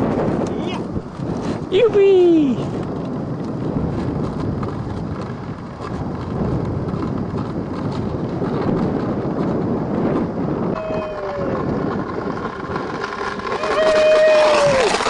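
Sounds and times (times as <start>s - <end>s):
wind buffeting microphone: 0.0s - 15.0s
faint falling tone: 10.8s - 11.7s.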